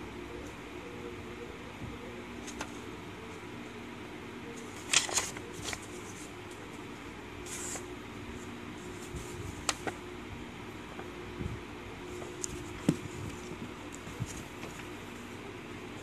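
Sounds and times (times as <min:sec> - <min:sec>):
faint low hum: 0:00.0 - 0:16.0
paper rustling and crinkling: 0:02.4 - 0:02.8, 0:04.6 - 0:06.8, 0:07.4 - 0:10.0, 0:12.1 - 0:15.0.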